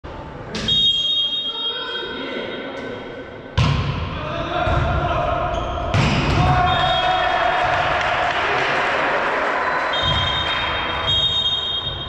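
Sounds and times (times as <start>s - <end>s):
referee's whistle: 0.6s - 2.1s, 6.6s - 7.2s, 9.8s - 12.0s
volleyball strikes: 3.5s - 5.1s, 5.8s - 7.0s, 9.9s - 12.0s
players shouting: 4.1s - 11.1s.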